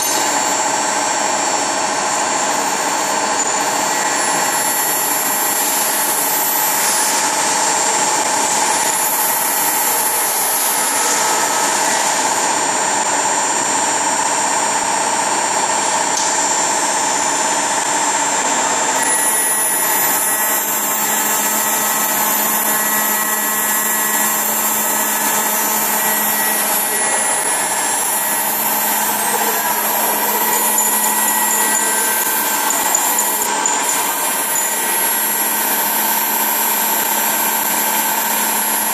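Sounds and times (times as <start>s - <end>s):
milling spindles whining: 18.9s - 38.9s.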